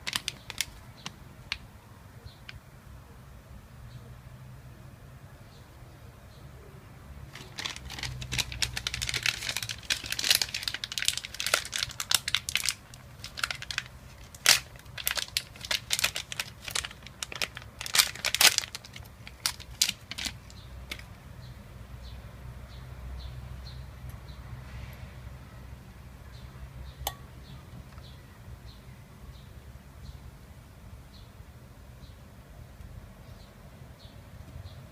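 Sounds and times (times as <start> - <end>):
plastic bag crinkling: 0.0 - 1.6, 7.3 - 21.1.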